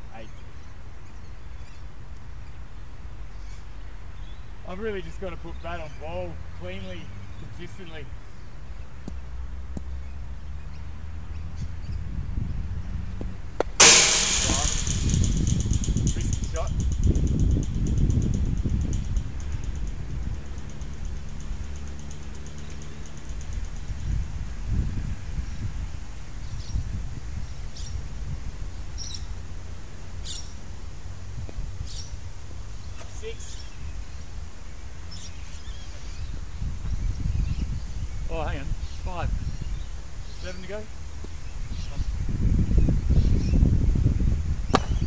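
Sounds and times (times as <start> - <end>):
loud rush of noise: 13.8 - 17.8
low rumble: 13.8 - 24.4
low steady hum: 13.8 - 24.6.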